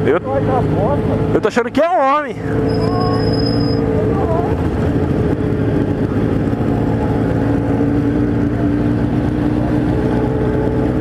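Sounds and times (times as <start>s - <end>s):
motorcycle engine droning: 2.3s - 11.0s.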